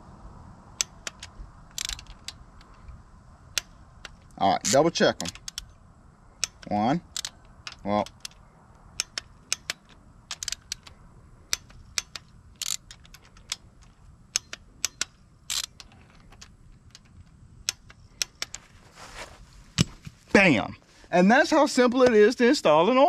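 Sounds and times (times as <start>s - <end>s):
torque wrench clicking: 0.8s - 5.8s, 6.4s - 18.7s.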